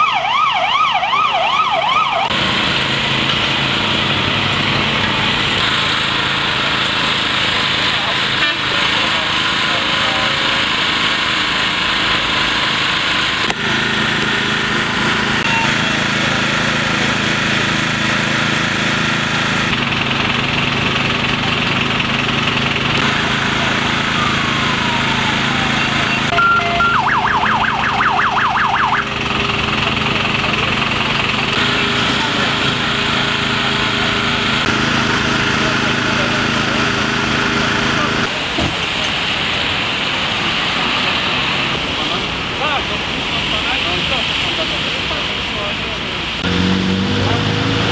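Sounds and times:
siren warbling: 0.0 - 2.4, 23.0 - 29.2
vehicle engines running: 0.0 - 47.9.

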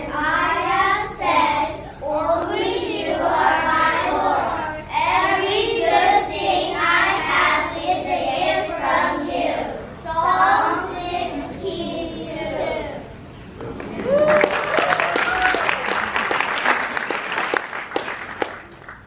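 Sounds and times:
children's choir singing: 0.0 - 13.2.

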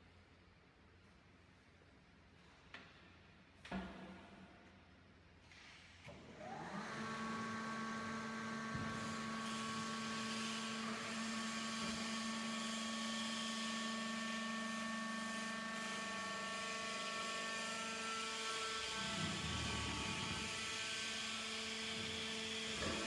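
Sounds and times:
electric motor and hydraulic pump humming: 6.1 - 23.0.

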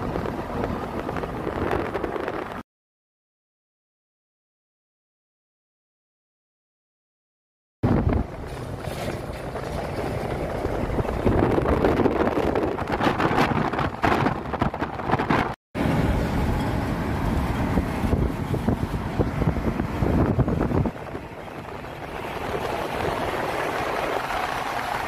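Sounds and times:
tyre and engine noise: 0.0 - 2.6, 7.8 - 25.0
wind on microphone: 0.0 - 2.6, 7.8 - 25.0
trucks passing close: 7.9 - 25.0.

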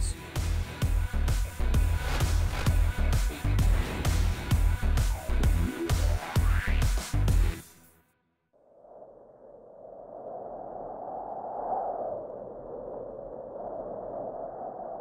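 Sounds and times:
soft airy rushing: 1.6 - 5.8.

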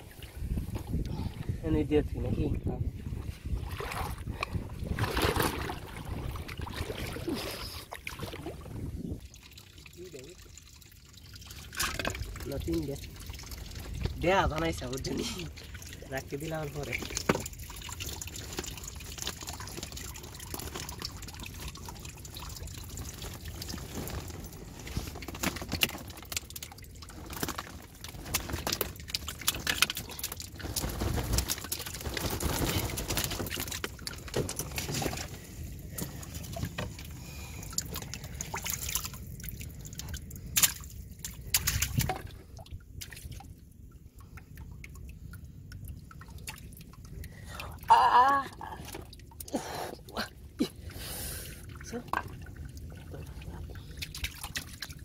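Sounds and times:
water trickling and dripping: 0.0 - 5.0, 5.7 - 55.0
hand sloshing through water: 3.2 - 9.0.

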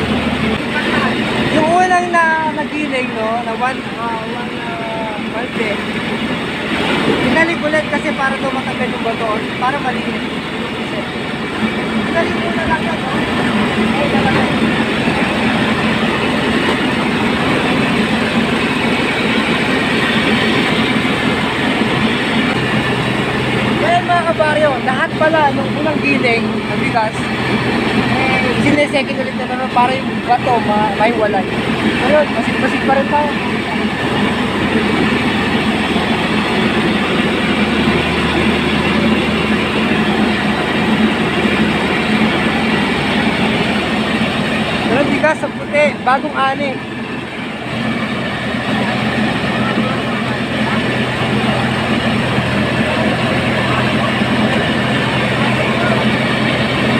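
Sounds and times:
rice mill machinery clattering: 0.0 - 56.9.

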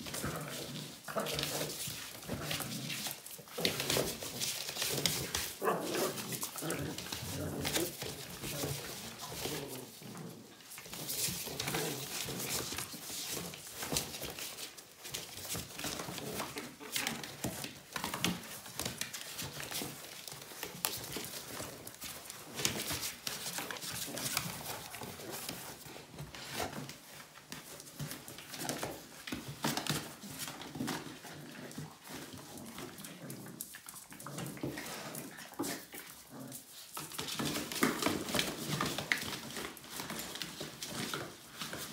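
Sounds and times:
puppy growls: 0.0 - 12.8, 29.9 - 36.8
cardboard crackling and scraping: 0.0 - 41.9
paws scrabbling: 0.0 - 41.9.

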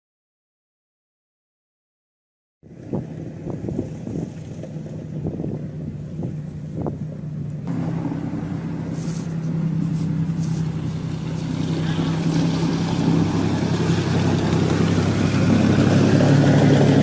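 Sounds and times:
vehicle engine running: 2.7 - 17.0
higher hum: 5.1 - 17.0.

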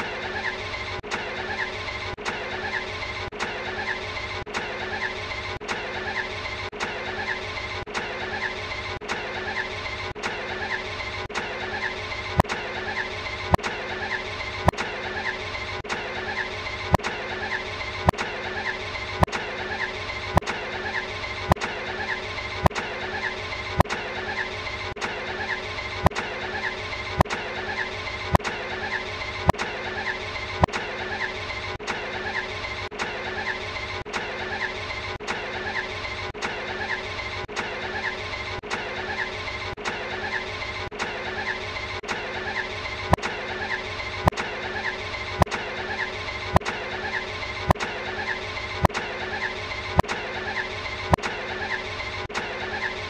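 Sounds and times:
sharp click: 11.3 - 11.6, 13.5 - 13.8, 31.8 - 32.1, 35.2 - 35.5, 41.0 - 41.2, 43.1 - 43.4, 45.4 - 45.7, 48.8 - 49.2, 50.0 - 50.3, 51.1 - 51.4, 52.3 - 52.6.

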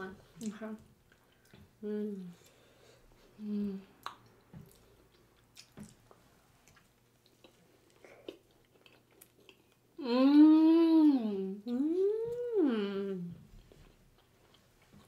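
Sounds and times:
people chewing: 0.3 - 9.9, 13.3 - 15.0
person humming: 1.8 - 2.4, 3.4 - 3.9, 10.0 - 13.4.

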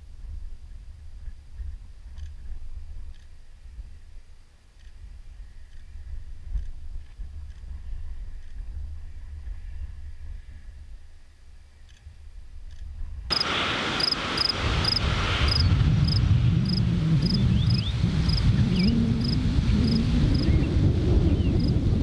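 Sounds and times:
wind rumbling on microphone: 0.0 - 22.0
cricket chirping: 13.3 - 20.5
low rumble: 13.3 - 22.0.

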